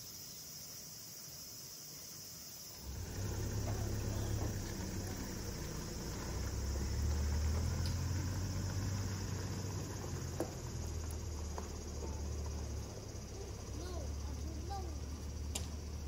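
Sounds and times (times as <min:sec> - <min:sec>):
insects chirring: 0:00.0 - 0:16.0
engine idling rumble: 0:02.8 - 0:16.0.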